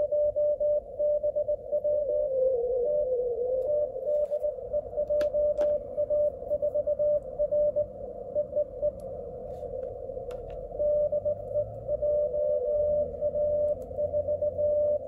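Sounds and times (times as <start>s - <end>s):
faint radio hiss: 1.6s - 15.0s
morse code beeps: 2.9s - 9.0s, 9.6s - 15.0s.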